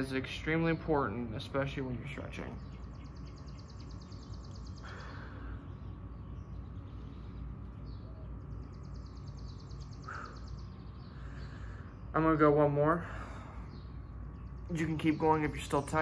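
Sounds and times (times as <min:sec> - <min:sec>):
low steady hum: 0:00.0 - 0:16.0
man breathing: 0:04.8 - 0:05.8, 0:10.0 - 0:12.1, 0:12.9 - 0:13.9.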